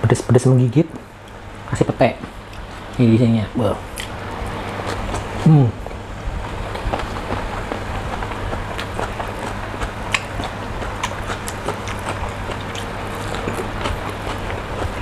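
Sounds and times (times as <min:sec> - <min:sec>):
steady low hum: 0:00.0 - 0:15.0
person chewing: 0:03.9 - 0:15.0.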